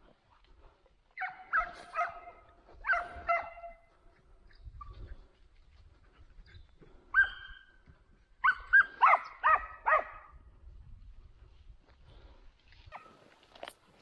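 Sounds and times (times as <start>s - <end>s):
dog barking: 1.2s - 3.8s, 7.1s - 7.6s, 8.4s - 10.3s.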